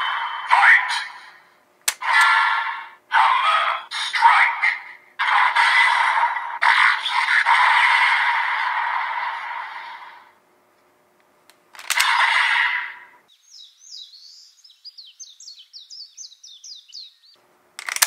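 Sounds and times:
clicks: 1.8s - 2.3s, 10.7s - 12.2s, 17.8s - 18.0s
small bird chirping: 13.3s - 17.4s.

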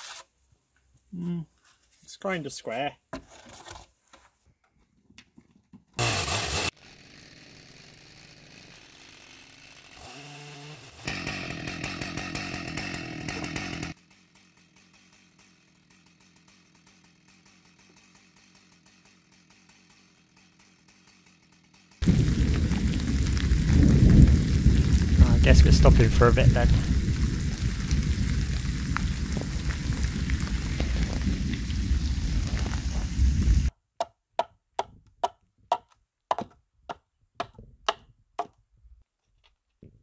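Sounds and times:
chainsaw running: 6.0s - 33.7s.

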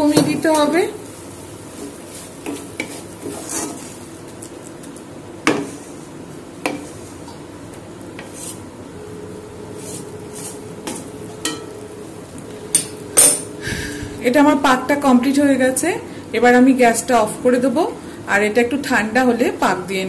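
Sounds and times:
faint sizzle: 0.0s - 20.0s
spatula scraping thick mixture in pan: 1.6s - 4.1s, 8.2s - 8.7s, 9.7s - 11.2s.

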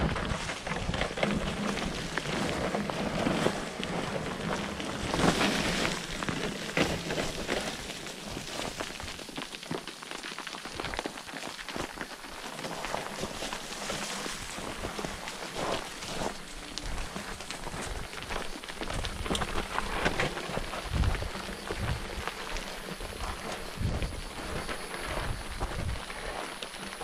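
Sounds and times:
bike rattling clicks and knocks: 0.0s - 9.6s
tyres crunching over stones: 0.0s - 27.0s.

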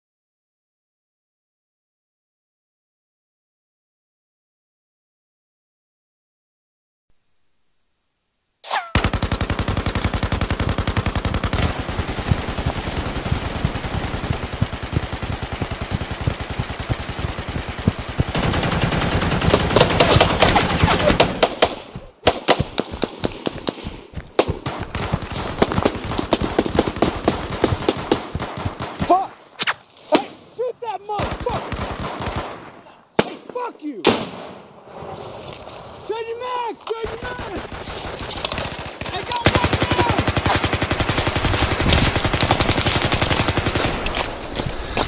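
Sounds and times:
single gunshots: 8.6s - 9.2s, 19.5s - 30.5s, 31.2s - 34.9s
rapid automatic gunfire: 8.9s - 29.2s, 31.2s - 32.7s, 37.0s - 44.3s.

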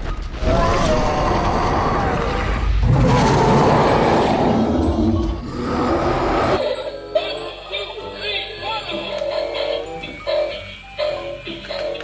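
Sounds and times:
cartoon fight rumbling and booming: 0.4s - 4.6s.

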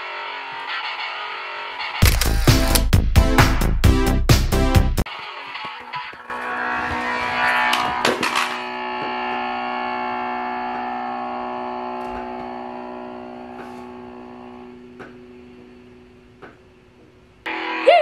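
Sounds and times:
held electronic guitar chord: 6.2s - 16.4s.

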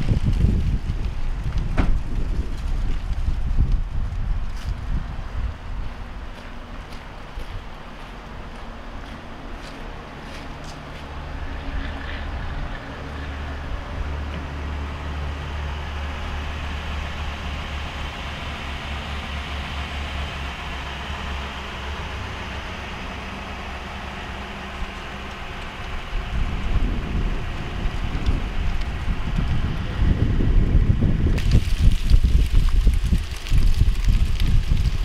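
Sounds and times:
wind buffeting microphone: 0.0s - 35.0s
car engine idling: 4.0s - 31.8s.

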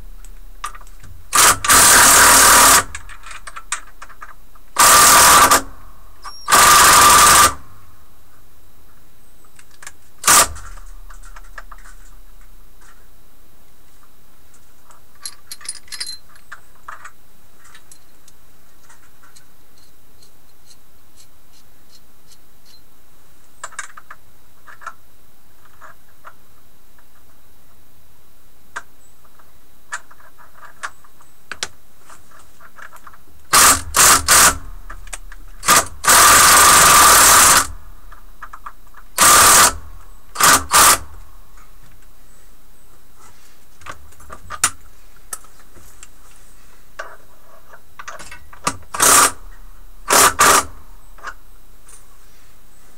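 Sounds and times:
cordless drill whine: 1.3s - 3.2s, 4.8s - 5.7s, 6.3s - 7.6s, 33.5s - 37.8s, 39.2s - 41.1s, 48.9s - 50.8s.

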